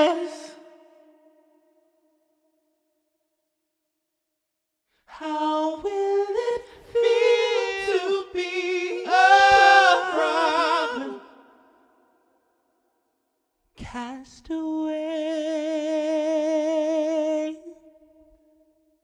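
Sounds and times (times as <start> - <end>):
unaccompanied voices singing: 0.0 - 0.8, 5.1 - 11.8.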